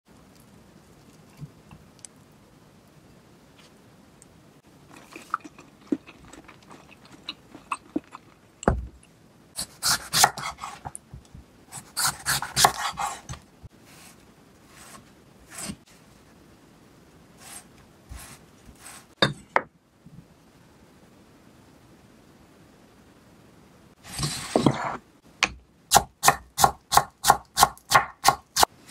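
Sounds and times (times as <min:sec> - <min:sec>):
knife slicing on cutting board: 0:09.6 - 0:10.9, 0:11.8 - 0:13.4.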